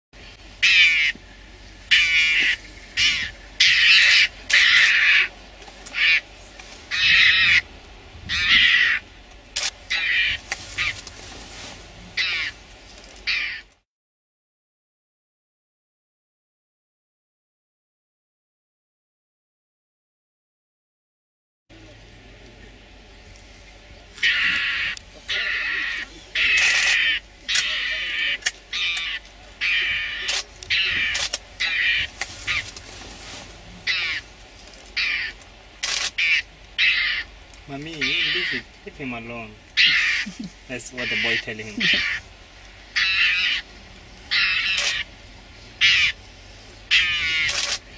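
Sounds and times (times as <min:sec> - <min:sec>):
mongoose high-pitched calls: 0:00.6 - 0:01.2, 0:01.9 - 0:05.3, 0:05.9 - 0:06.3, 0:06.9 - 0:07.6, 0:08.3 - 0:09.0, 0:09.9 - 0:11.0, 0:12.2 - 0:12.6, 0:24.2 - 0:32.7, 0:33.8 - 0:34.3, 0:35.0 - 0:37.3, 0:37.9 - 0:38.7, 0:39.8 - 0:42.3, 0:42.9 - 0:43.7, 0:44.3 - 0:45.1, 0:45.8 - 0:46.2, 0:46.9 - 0:47.8.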